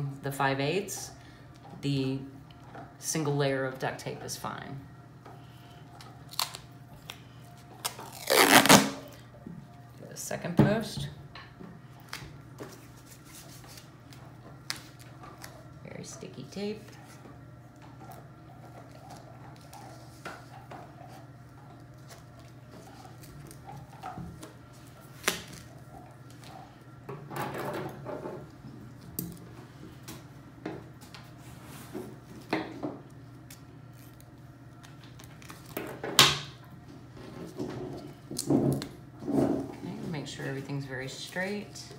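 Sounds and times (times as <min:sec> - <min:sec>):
steady low hum: 0:00.0 - 0:41.9
tape ripping: 0:06.3 - 0:07.2, 0:07.8 - 0:09.2
duct tape pulled off roll: 0:07.8 - 0:09.2.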